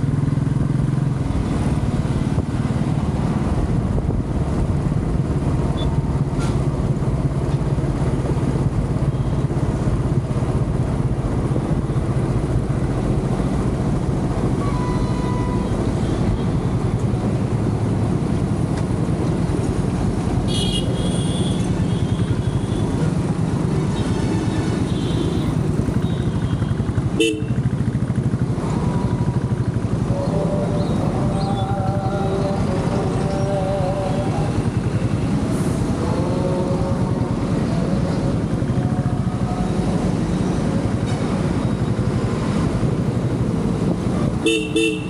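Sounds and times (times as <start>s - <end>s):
motorcycle engine running: 0.0s - 45.0s
road and wind noise: 0.0s - 45.0s
surrounding traffic: 0.0s - 45.0s
vehicle horns honking: 14.6s - 16.6s, 20.5s - 23.0s, 24.8s - 27.7s, 44.4s - 45.0s.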